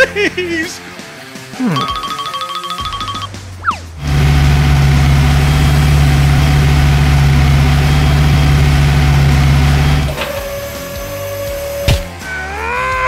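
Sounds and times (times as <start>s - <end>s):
truck engine idling: 4.0s - 12.2s.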